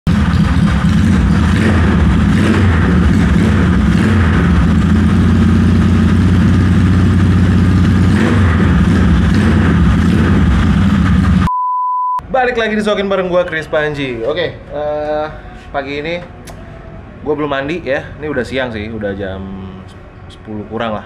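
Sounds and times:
motorcycle engine idling: 0:00.1 - 0:08.2.

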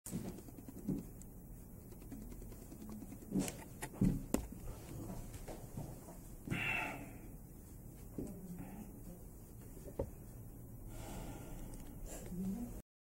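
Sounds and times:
man breathing: 0:06.5 - 0:07.3, 0:10.8 - 0:12.3
breath out through the nose: 0:10.9 - 0:12.3.

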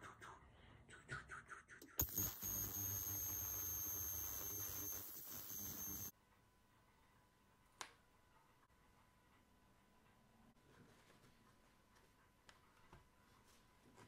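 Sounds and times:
ultrasonic cleaner humming: 0:02.0 - 0:06.1.

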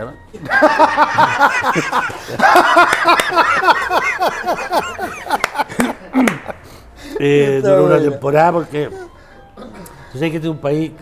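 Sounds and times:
man laughing loudly: 0:00.4 - 0:06.6.

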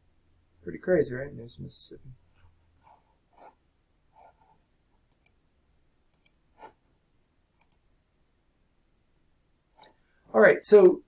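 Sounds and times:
computer mouse clicking: 0:05.0 - 0:05.4, 0:06.1 - 0:06.4, 0:07.6 - 0:07.8.

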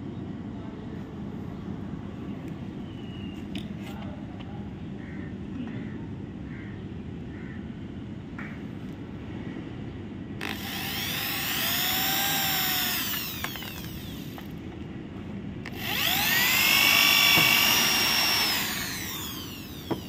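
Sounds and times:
electric drill whining: 0:10.4 - 0:14.6, 0:15.7 - 0:20.0.

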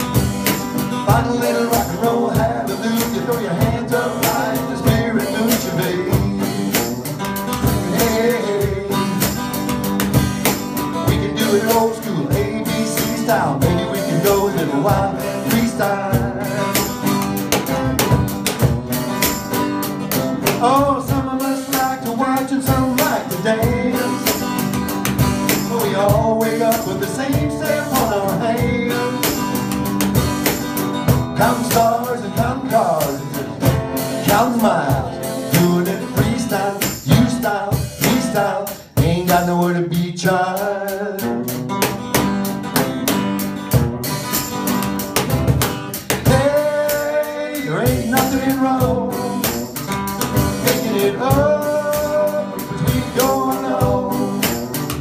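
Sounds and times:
acoustic guitar strumming: 0:00.0 - 0:55.0
man singing: 0:00.8 - 0:09.8, 0:10.5 - 0:17.2, 0:20.4 - 0:29.9, 0:31.1 - 0:41.7, 0:46.1 - 0:55.0.

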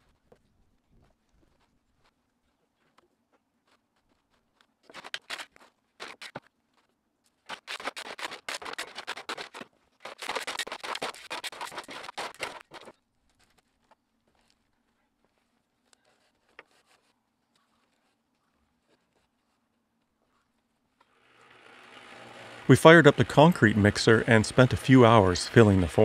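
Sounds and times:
rocks scraping and clattering: 0:07.5 - 0:13.7.

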